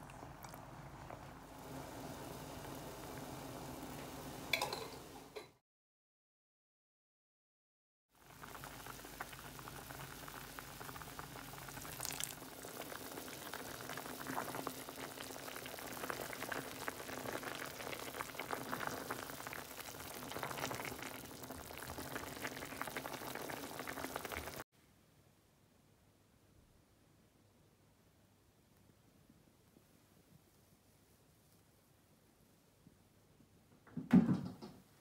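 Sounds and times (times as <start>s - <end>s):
curry bubbling and popping: 0.0s - 1.5s, 8.2s - 24.6s.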